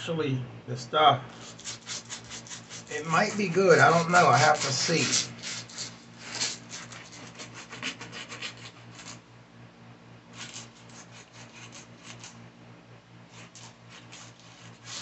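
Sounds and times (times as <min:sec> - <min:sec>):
brush scrubbing a sneaker: 0:01.4 - 0:09.2, 0:10.4 - 0:12.4, 0:13.3 - 0:15.0.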